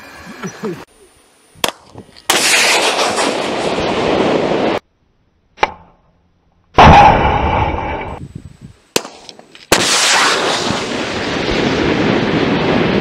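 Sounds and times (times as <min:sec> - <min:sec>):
missile rushing noise: 0:01.7 - 0:04.8, 0:06.8 - 0:08.2, 0:09.0 - 0:13.0
loud bang: 0:06.8 - 0:08.2
missile launch blast: 0:09.7 - 0:13.0.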